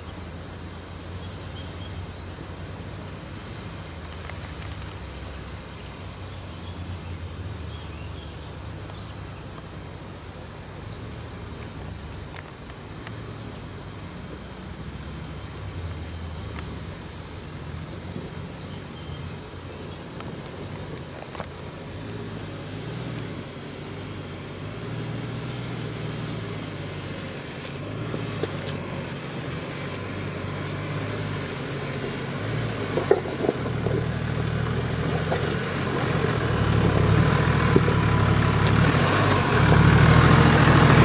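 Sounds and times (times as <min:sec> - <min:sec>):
suv engine running near idle: 0:00.0 - 0:41.0
faint clicks: 0:04.0 - 0:05.2, 0:11.6 - 0:13.2, 0:15.8 - 0:16.8, 0:20.1 - 0:22.2.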